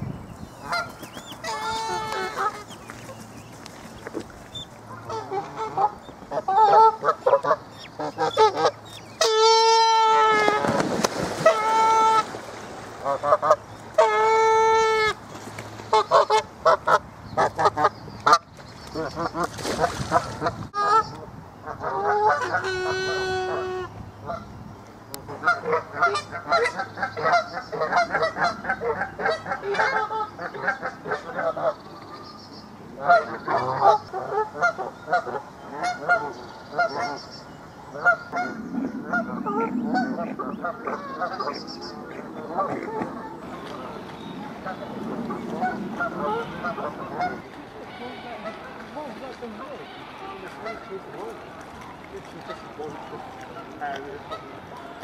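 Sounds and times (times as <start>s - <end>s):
geese honking: 38.0s - 43.2s, 44.6s - 51.6s, 52.3s - 55.0s.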